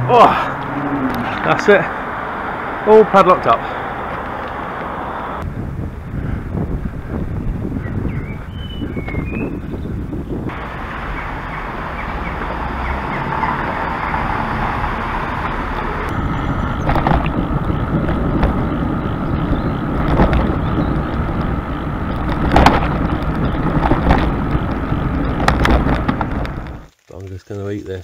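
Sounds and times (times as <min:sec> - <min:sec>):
bicycle tyre noise: 0:03.6 - 0:27.0
wind on microphone: 0:04.1 - 0:26.9
bike knocks and rattles: 0:16.8 - 0:26.8.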